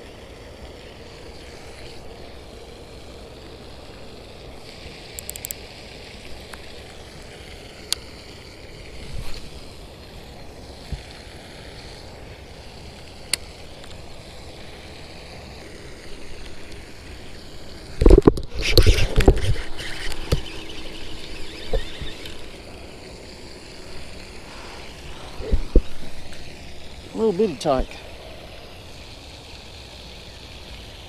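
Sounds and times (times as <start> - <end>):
fishing reel clicks: 5.0 - 5.7
wind on microphone: 24.4 - 26.5.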